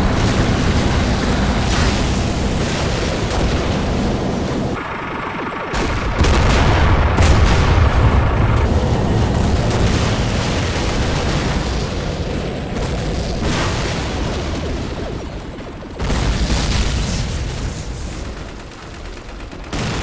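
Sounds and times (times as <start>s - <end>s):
low rumble: 0.0s - 16.0s
heavy explosions: 0.0s - 19.0s
gunfire: 5.7s - 12.1s, 16.0s - 20.0s.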